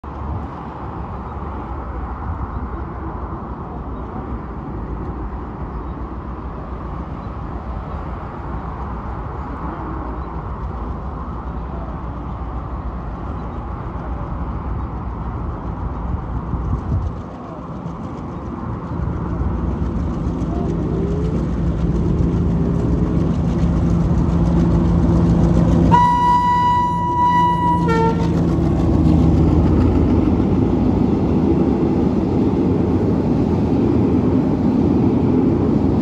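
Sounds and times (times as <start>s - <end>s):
highway traffic: 0.0s - 36.0s
low locomotive hum: 0.0s - 36.0s
wind on microphone: 14.2s - 36.0s.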